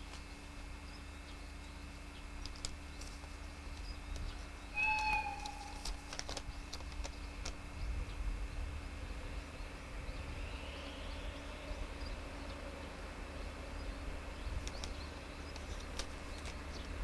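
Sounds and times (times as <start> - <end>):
low steady rumble: 0.0 - 17.0
short high-pitched tone: 4.8 - 5.8.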